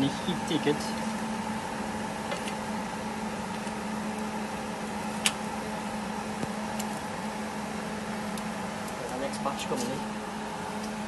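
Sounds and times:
steady appliance hum: 0:00.0 - 0:11.0.

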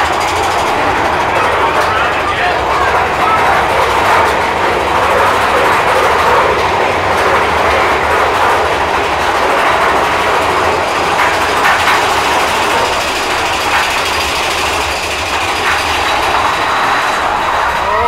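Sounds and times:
roller coaster wheels rumbling on rails: 0:00.0 - 0:18.0.

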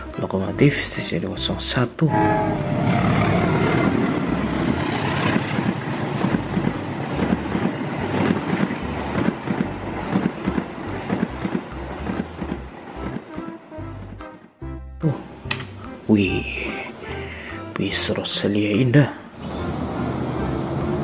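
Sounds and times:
diesel locomotive rushing past: 0:02.1 - 0:14.8, 0:17.1 - 0:21.0
train wheels clattering over rails: 0:03.8 - 0:14.5.

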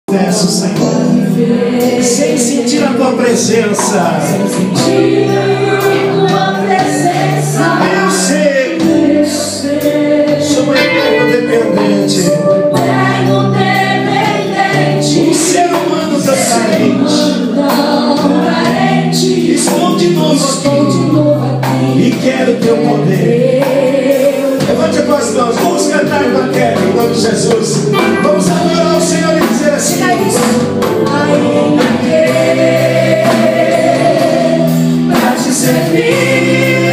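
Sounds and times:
amplified backing music: 0:00.1 - 0:36.9
woman singing into a microphone: 0:17.2 - 0:18.9.

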